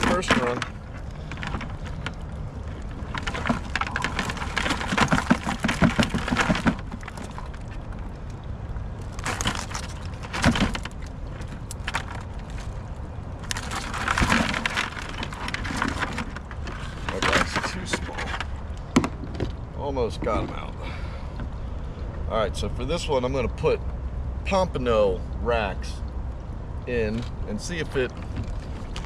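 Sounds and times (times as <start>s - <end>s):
wire crab pot rattling: 0.0s - 8.1s, 9.0s - 19.6s.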